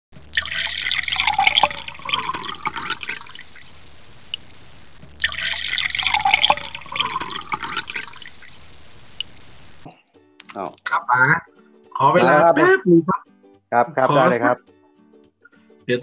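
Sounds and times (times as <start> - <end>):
water dripping and splashing: 0.2 - 4.5, 5.1 - 10.6.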